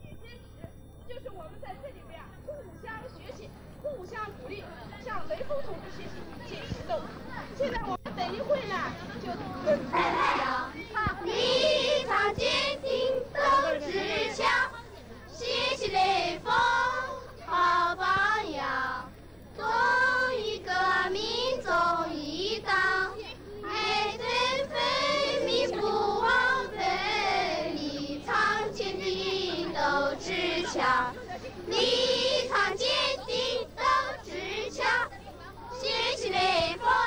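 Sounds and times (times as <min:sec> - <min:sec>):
children singing: 0:09.7 - 0:37.0.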